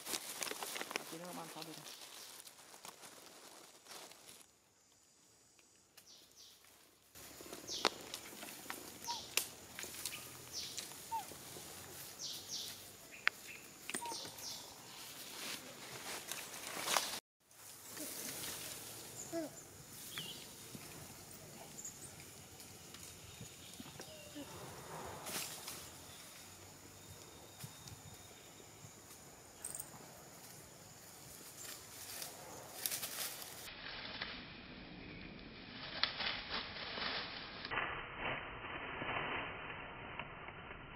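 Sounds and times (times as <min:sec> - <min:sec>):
rustling of dry leaf litter: 0:00.0 - 0:04.5, 0:06.0 - 0:26.8, 0:30.4 - 0:34.5
birds chirping: 0:07.4 - 0:15.2, 0:19.0 - 0:24.6
twigs snapping underfoot: 0:07.5 - 0:11.1.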